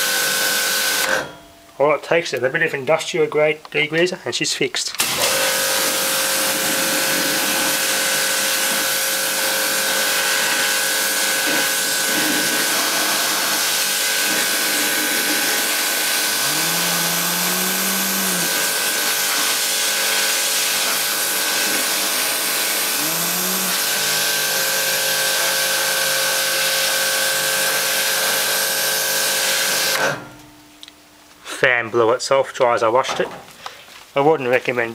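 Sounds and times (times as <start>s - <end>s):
pressure washer spraying water: 0.0s - 1.1s, 5.0s - 30.1s
thin steady whine: 15.4s - 19.4s
low hum rising in pitch: 16.3s - 18.9s, 23.0s - 23.8s.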